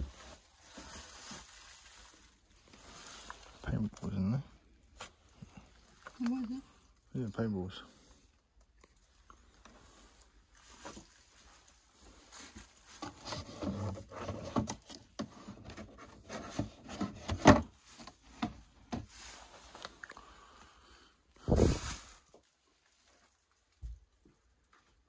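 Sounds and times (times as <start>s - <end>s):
boxes rubbing and scraping: 12.3s - 18.2s.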